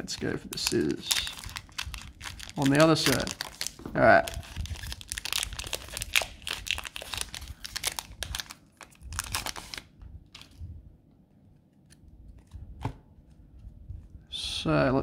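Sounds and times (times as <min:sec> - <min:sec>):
plastic wrapper crinkling and tearing: 0:00.0 - 0:10.6.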